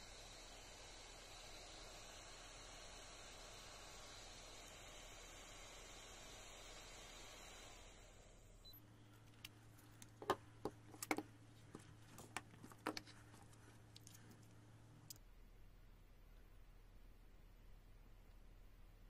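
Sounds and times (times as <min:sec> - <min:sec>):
faint steady hum: 0:00.0 - 0:19.0
handling clicks and taps: 0:09.3 - 0:14.5.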